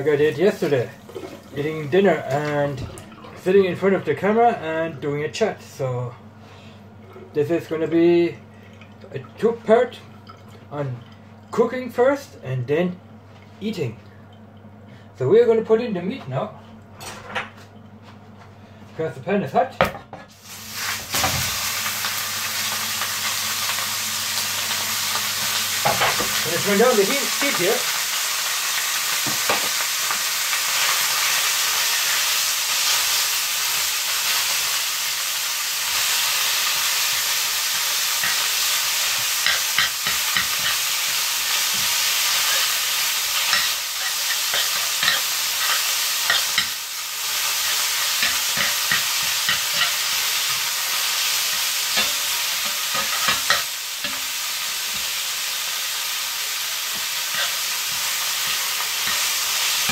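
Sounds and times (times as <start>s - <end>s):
meat sizzling in a frying pan: 0.0s - 2.5s, 20.3s - 59.9s
spatula scraping a pan: 57.2s - 59.9s.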